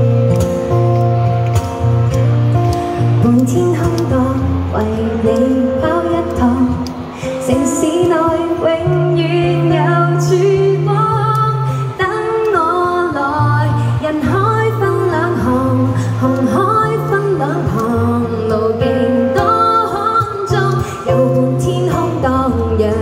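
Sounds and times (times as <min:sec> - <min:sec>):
low bass notes: 0:00.0 - 0:07.2
acoustic guitar: 0:00.0 - 0:23.0
woman singing into a microphone: 0:02.6 - 0:23.0.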